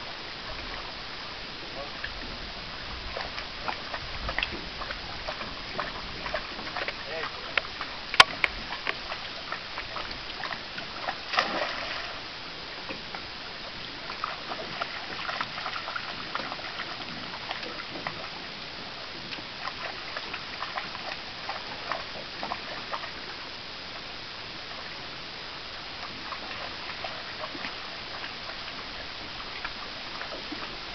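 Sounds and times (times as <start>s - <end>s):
dog splashing through shallow water: 0.4s - 23.4s, 26.0s - 30.9s.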